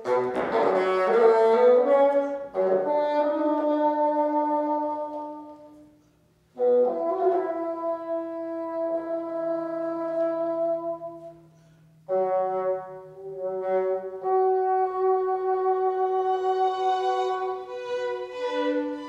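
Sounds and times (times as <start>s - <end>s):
bassoon sustained notes: 12.1s - 19.0s.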